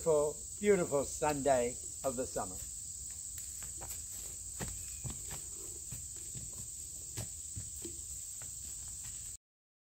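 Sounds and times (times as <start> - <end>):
high insect drone: 0.0 - 9.4
horse hooves on dirt trail: 2.1 - 9.4.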